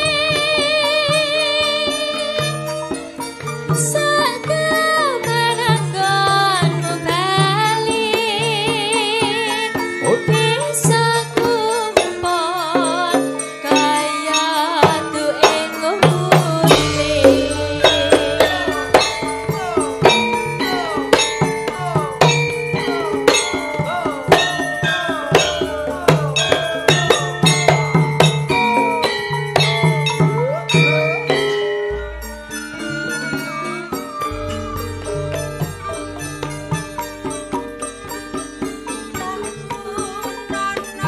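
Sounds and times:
woman singing: 0:00.0 - 0:31.4, 0:38.6 - 0:41.0
gamelan gongs and metallophones: 0:00.0 - 0:41.0
hand drums: 0:00.0 - 0:41.0
deep low drum: 0:34.3 - 0:38.4.

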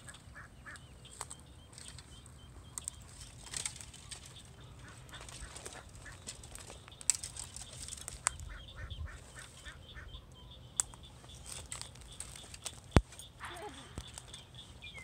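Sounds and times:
ducks calling: 0:00.0 - 0:15.0
sharp clicks: 0:10.8 - 0:13.3.

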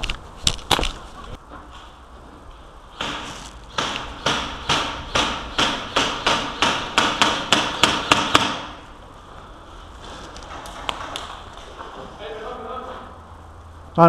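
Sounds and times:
footsteps crunching on gritty concrete: 0:03.1 - 0:03.7.

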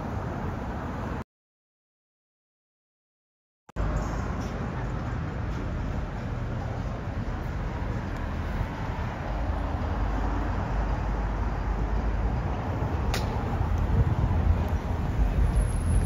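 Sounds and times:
city street traffic: 0:00.0 - 0:01.2, 0:03.8 - 0:16.0
sharp click: 0:13.1 - 0:13.4.

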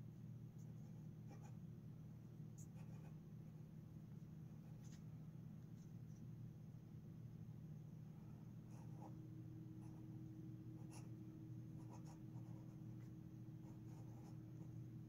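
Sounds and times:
pen nib scratching on paper: 0:02.6 - 0:03.2, 0:11.8 - 0:14.8.

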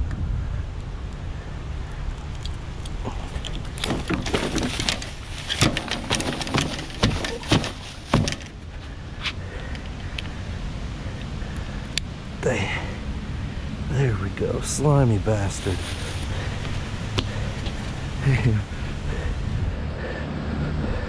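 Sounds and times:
steady low rumble: 0:00.0 - 0:21.0
knocks and clatter on wooden boards: 0:03.7 - 0:08.6.

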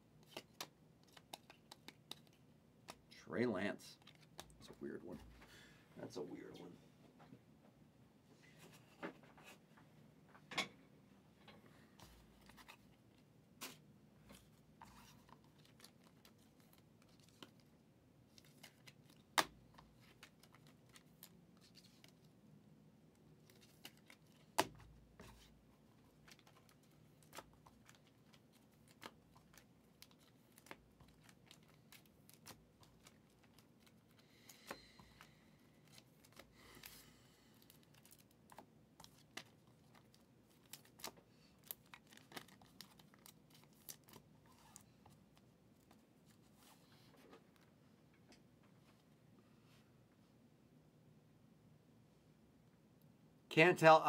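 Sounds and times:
trading cards clicking and tapping: 0:00.2 - 0:03.1
foil wrapper crinkling and tearing: 0:37.5 - 0:44.7.

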